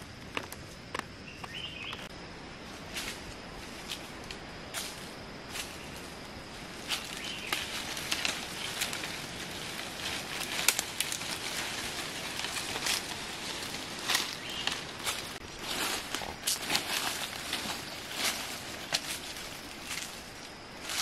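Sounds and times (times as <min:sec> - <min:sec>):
leaves and stems rustling: 0:00.6 - 0:21.0
twigs snapping: 0:06.9 - 0:20.2.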